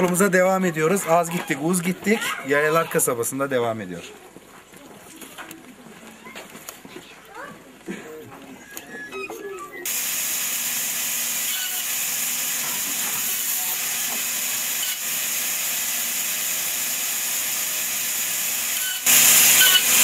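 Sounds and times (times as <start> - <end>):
power saw hissing: 9.9 - 20.0.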